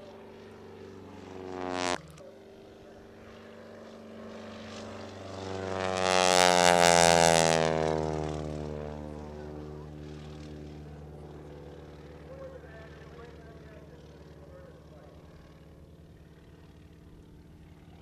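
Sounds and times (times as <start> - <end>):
biplane engine and propeller: 0.0 - 18.0.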